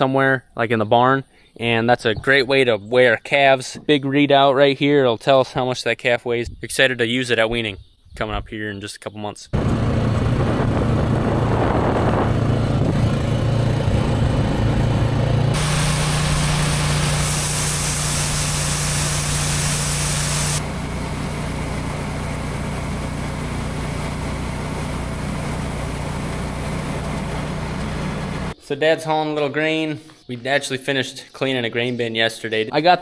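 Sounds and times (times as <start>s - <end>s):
grain auger running: 9.6s - 28.6s
truck engine running: 9.6s - 28.6s
hiss: 15.6s - 20.6s.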